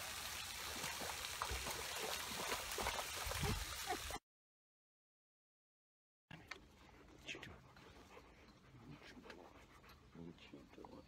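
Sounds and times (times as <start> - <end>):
fountain spray hissing on water: 0.0 - 0.6.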